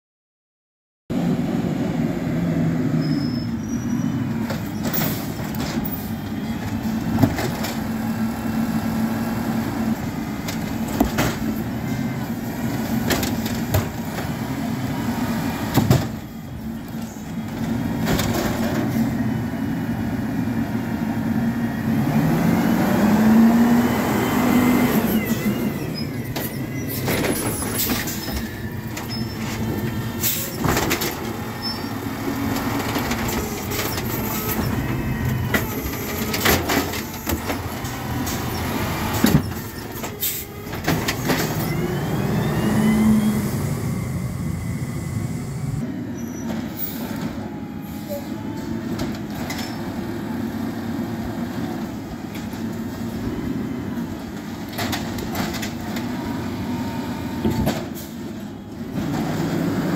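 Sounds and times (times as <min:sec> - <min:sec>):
garbage truck engine running: 0:01.2 - 0:59.9
sharp knocks of carts banging: 0:10.4 - 0:11.7
engine revving in rising whine: 0:41.5 - 0:45.9.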